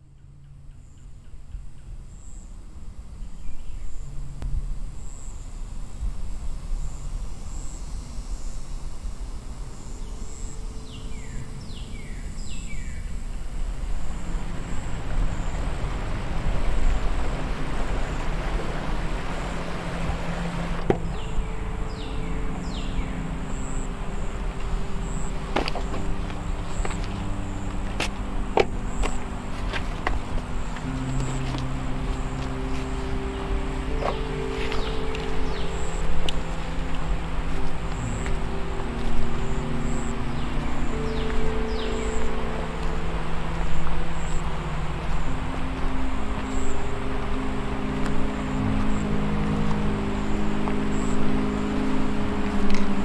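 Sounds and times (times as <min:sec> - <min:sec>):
low rumble: 0:00.0 - 0:53.0
low sustained hum: 0:00.0 - 0:53.0
high-pitched insect-like whine: 0:02.0 - 0:53.0
bird-like chirps: 0:20.4 - 0:52.1.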